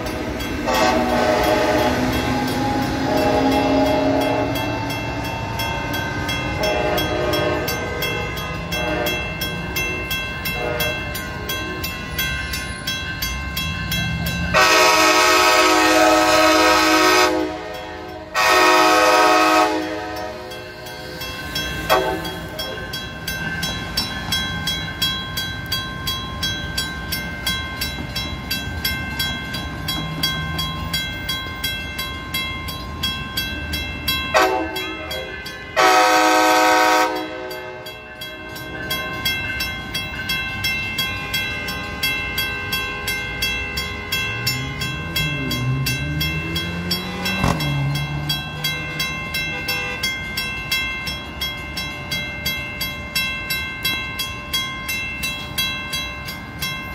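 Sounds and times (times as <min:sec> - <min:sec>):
crossing bell dinging: 0:00.0 - 0:56.9
locomotive horn: 0:00.6 - 0:04.9, 0:06.6 - 0:09.3, 0:10.5 - 0:11.1, 0:14.5 - 0:20.6, 0:34.3 - 0:37.8.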